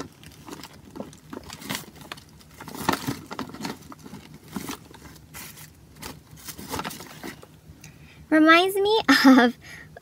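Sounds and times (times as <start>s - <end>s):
hands rummaging through plastic toys: 0.0s - 7.5s
packaging rustling: 0.0s - 7.6s.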